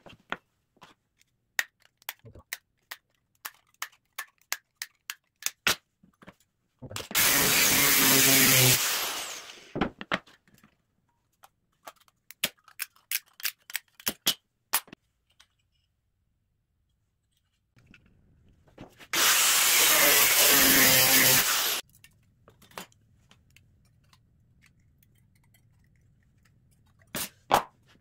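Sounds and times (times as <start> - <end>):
tools clicking and tapping: 1.2 - 5.6, 21.8 - 27.2
angle grinder cutting wood: 7.2 - 9.8, 19.1 - 21.8.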